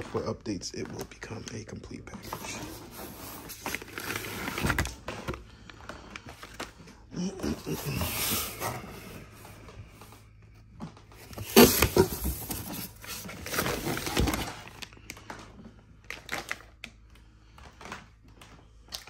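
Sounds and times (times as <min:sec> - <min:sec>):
cardboard and styrofoam scraping: 0:02.2 - 0:05.0, 0:11.2 - 0:14.7.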